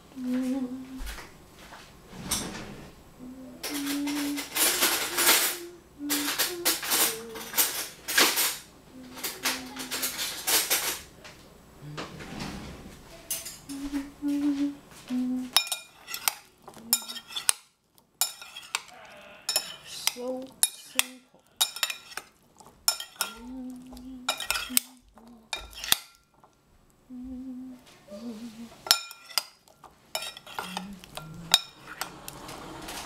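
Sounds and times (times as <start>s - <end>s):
cutlery clinking on ceramic bowl: 15.5s - 26.5s, 28.8s - 32.3s.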